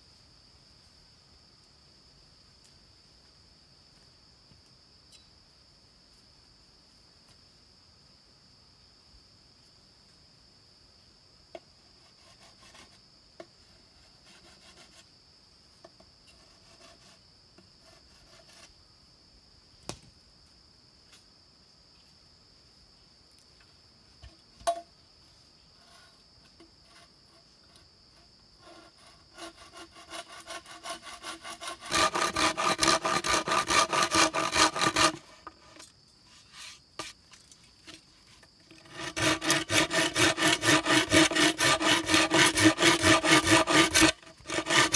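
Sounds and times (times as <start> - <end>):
insects droning: 0.0 - 44.9
hand saw cutting bamboo: 28.6 - 37.2, 38.7 - 44.9.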